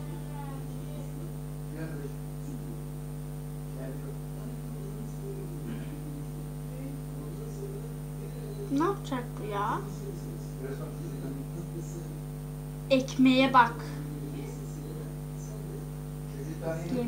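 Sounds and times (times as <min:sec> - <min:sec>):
electrical mains hum: 0:00.0 - 0:17.0
faint muffled sounds: 0:00.0 - 0:17.0.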